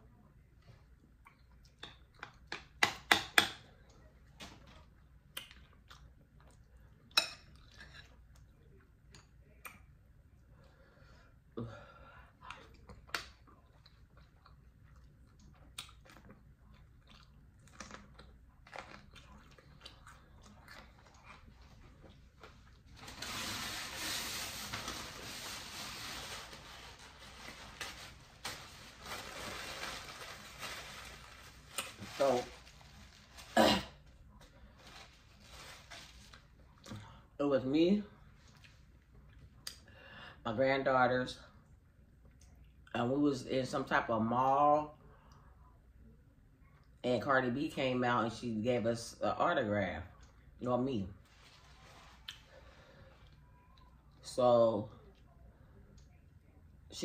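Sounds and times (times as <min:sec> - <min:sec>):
paper towel rustling: 0:21.6 - 0:36.6, 0:51.2 - 0:53.0.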